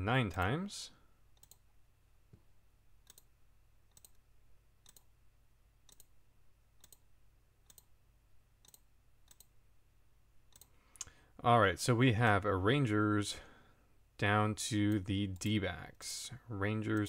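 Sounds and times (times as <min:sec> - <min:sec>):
faint computer mouse clicks: 0:01.4 - 0:01.6, 0:03.0 - 0:03.3, 0:03.9 - 0:04.2, 0:04.8 - 0:05.1, 0:05.9 - 0:06.1, 0:06.8 - 0:07.0, 0:07.7 - 0:07.9, 0:08.6 - 0:09.5, 0:10.5 - 0:11.2.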